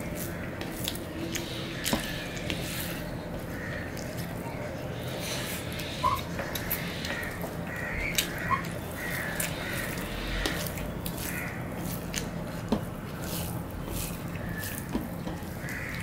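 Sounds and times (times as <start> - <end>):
fingers mixing rice on plate: 0.0 - 16.0
chewing and mouth sounds: 8.0 - 16.0.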